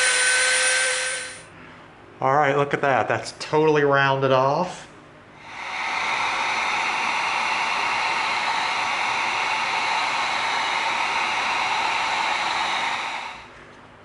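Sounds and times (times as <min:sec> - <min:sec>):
heat gun blowing air: 0:00.0 - 0:01.4, 0:05.4 - 0:13.6.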